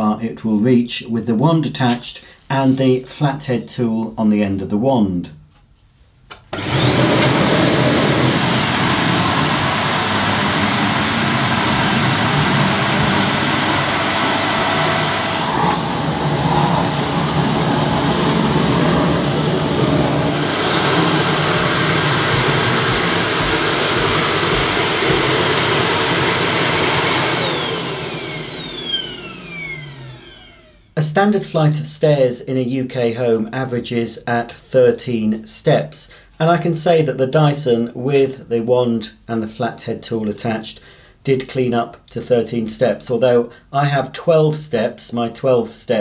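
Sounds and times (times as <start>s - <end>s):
vacuum cleaner motor whine: 6.5s - 31.0s.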